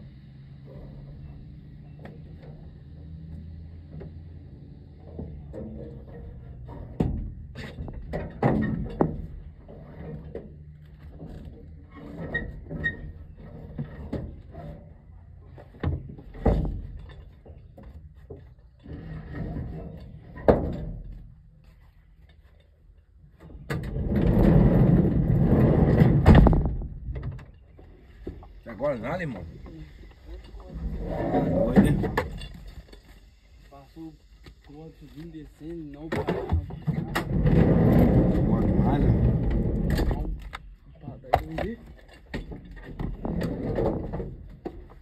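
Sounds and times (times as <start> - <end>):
knocks and thuds: 23.6 - 27.6.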